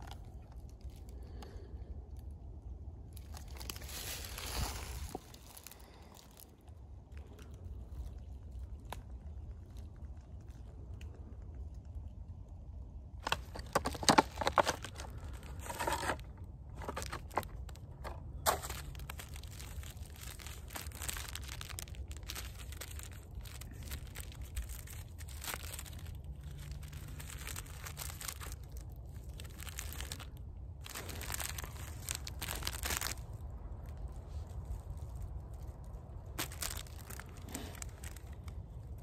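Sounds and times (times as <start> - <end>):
low rumble: 0.0 - 39.0
plastic packaging crinkling: 3.2 - 6.5, 13.2 - 39.0.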